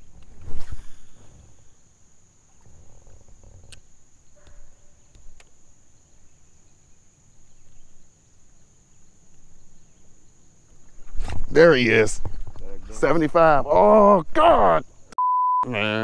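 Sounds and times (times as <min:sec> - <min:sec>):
faint clicks: 0:03.6 - 0:05.6.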